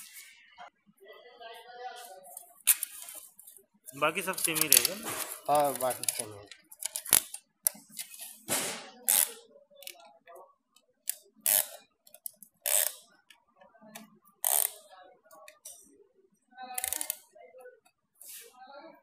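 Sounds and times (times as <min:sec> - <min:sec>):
ratchet clicking: 0:09.1 - 0:09.4, 0:11.1 - 0:13.0, 0:14.4 - 0:14.8, 0:16.8 - 0:17.2.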